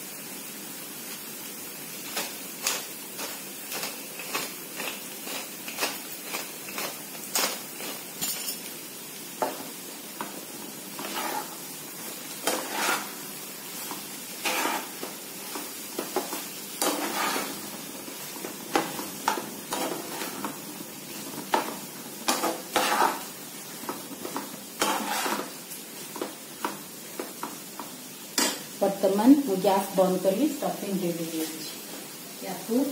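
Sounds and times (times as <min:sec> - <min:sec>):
food sizzling: 0:00.0 - 0:32.9
metal spatula scraping pan: 0:11.0 - 0:17.7, 0:18.7 - 0:20.6, 0:22.3 - 0:23.3, 0:24.8 - 0:25.6.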